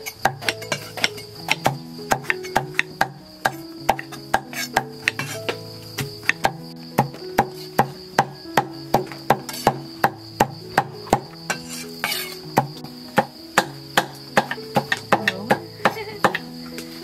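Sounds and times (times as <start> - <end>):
knife chopping on wooden board: 0.3 - 4.0, 6.3 - 8.4.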